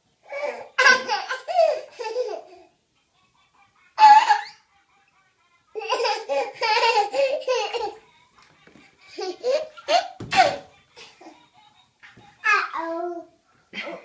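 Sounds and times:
baby laughing: 0.3 - 2.7, 4.0 - 4.6, 5.8 - 8.0, 9.0 - 11.4.

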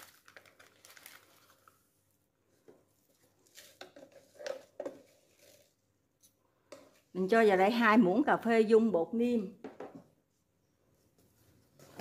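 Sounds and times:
spice containers rustling: 0.0 - 1.9, 2.5 - 7.2.

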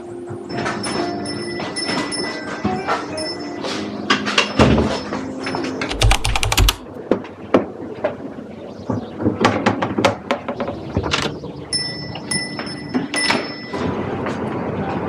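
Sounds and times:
rapid clicking: 5.8 - 6.8.

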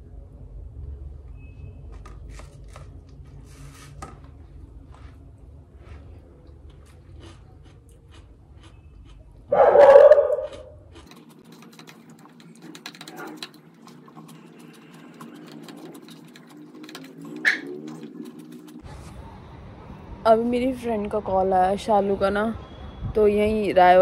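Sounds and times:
low steady hum: 0.0 - 24.0
clicks and rustles of eating: 1.9 - 3.4, 6.4 - 9.2, 10.1 - 19.0
dog whining: 9.5 - 10.8.

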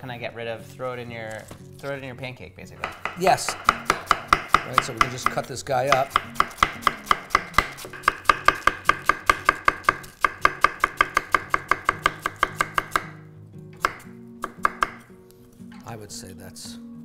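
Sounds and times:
knife chopping cabbage on wooden board: 2.8 - 13.2, 13.8 - 15.1.

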